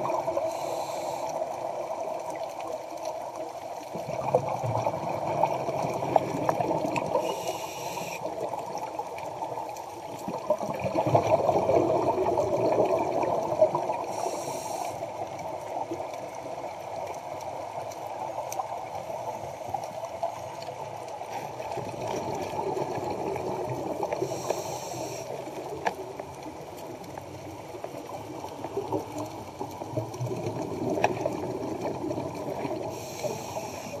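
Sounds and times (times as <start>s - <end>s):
regulator bubbling underwater: 0.0s - 16.7s, 21.7s - 34.0s
short hiss of breath: 0.5s - 1.3s, 7.2s - 8.3s, 14.1s - 15.0s, 24.3s - 25.3s, 33.0s - 34.0s.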